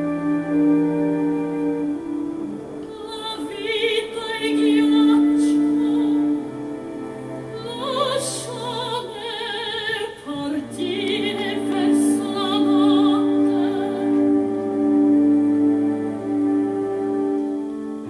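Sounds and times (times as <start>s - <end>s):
held orchestral chords: 0.0s - 18.0s
operatic voice singing: 2.8s - 15.3s.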